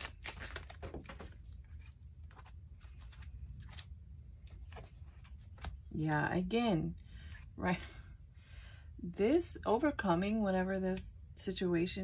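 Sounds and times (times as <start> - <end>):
cards being shuffled: 0.0 - 6.0
low steady hum: 0.0 - 12.0.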